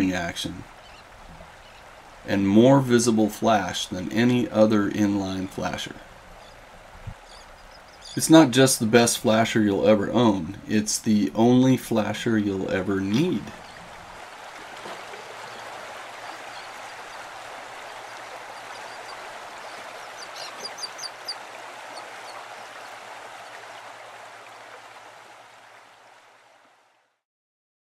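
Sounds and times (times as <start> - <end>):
flowing water rushing: 0.0 - 27.1.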